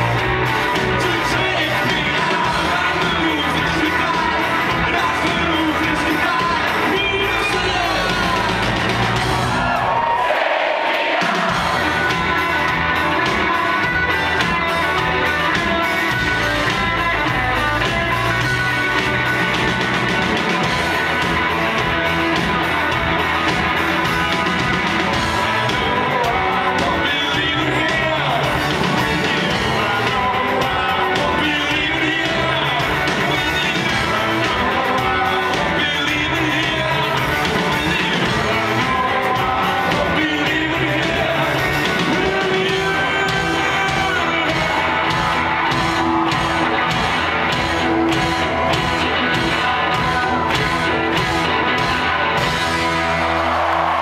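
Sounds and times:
lead singer vocals: 0:00.0 - 0:09.0, 0:25.2 - 0:46.4
rock band playing live: 0:00.0 - 0:54.0.

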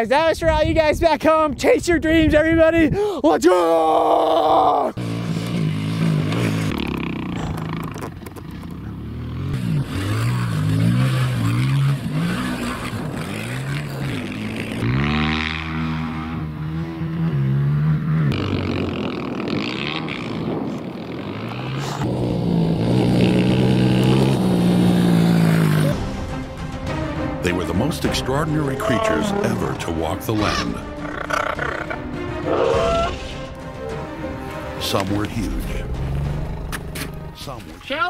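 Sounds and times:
dirt bike engine revving: 0:05.0 - 0:26.4, 0:35.8 - 0:37.3.

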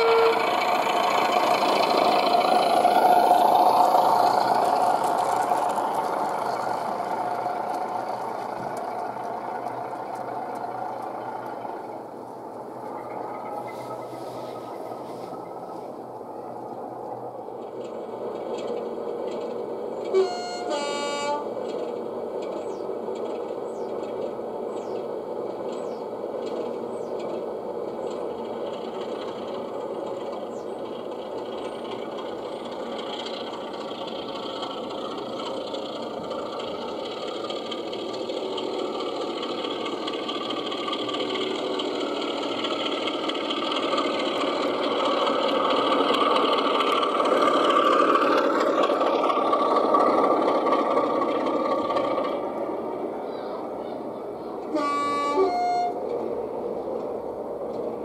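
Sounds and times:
model train running on track: 0:00.0 - 0:58.0.

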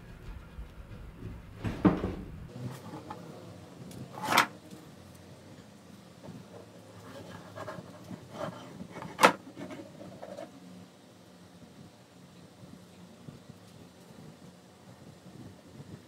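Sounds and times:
wood scraping on workbench: 0:06.9 - 0:10.5.

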